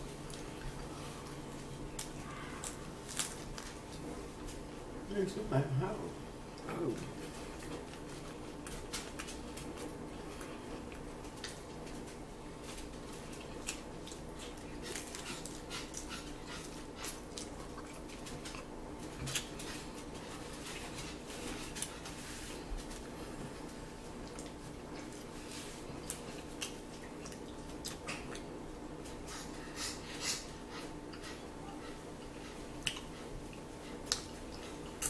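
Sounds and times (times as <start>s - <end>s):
lettuce crunching while chewing: 0.0s - 4.6s, 6.6s - 31.4s, 32.2s - 35.0s.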